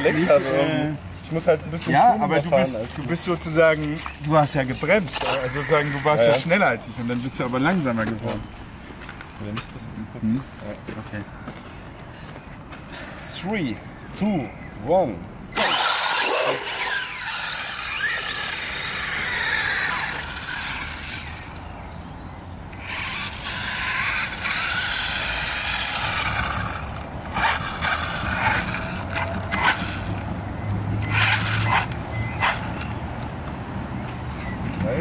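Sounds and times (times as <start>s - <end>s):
rc car electric motors whining: 0.0s - 0.9s, 5.0s - 6.7s, 15.5s - 21.7s, 22.7s - 30.3s, 31.1s - 32.9s
tyres on wet gritty tarmac: 15.6s - 35.0s
sharp clicks and scrapes: 22.8s - 30.3s, 31.1s - 32.9s.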